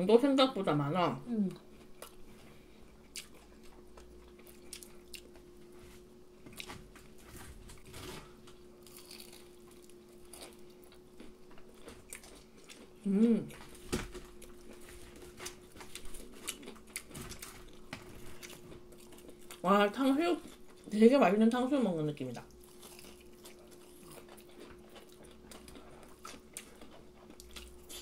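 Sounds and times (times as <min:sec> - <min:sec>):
faint steady hum: 0:00.0 - 0:28.0
people chewing crispy food: 0:01.8 - 0:08.2, 0:08.8 - 0:19.7, 0:20.4 - 0:21.0, 0:22.4 - 0:28.0
person humming: 0:13.0 - 0:13.6.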